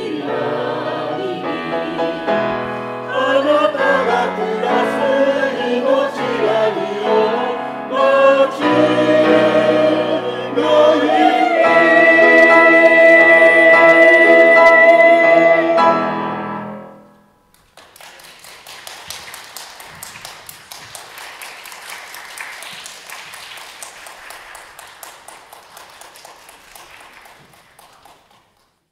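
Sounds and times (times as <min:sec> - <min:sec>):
choir and piano chord: 0:00.0 - 0:17.2
audience applause: 0:17.6 - 0:28.8.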